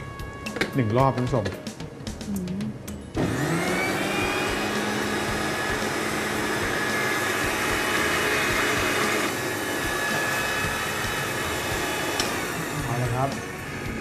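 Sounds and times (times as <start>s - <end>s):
blender motor whining: 3.2s - 14.0s.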